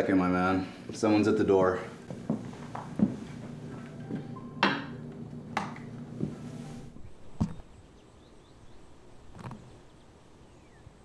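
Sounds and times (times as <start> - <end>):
low room hum: 0.0 - 9.1
footsteps on hard floor: 2.0 - 4.8, 5.6 - 7.6.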